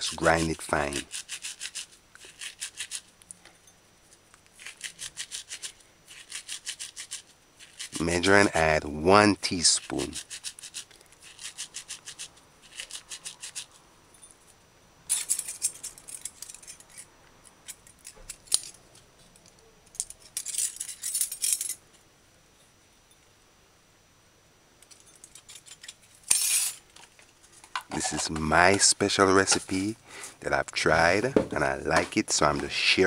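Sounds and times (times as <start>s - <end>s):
dried herbs rubbed between palms: 0.0s - 3.2s, 4.1s - 13.8s, 28.0s - 33.0s
dry rustling and scraping: 0.0s - 13.8s, 24.9s - 33.0s.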